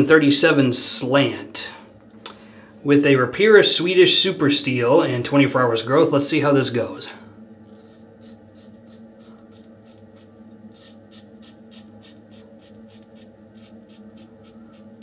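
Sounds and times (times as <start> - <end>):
steady low hum: 0.0 - 15.0
razor scraping stubble: 7.7 - 15.0.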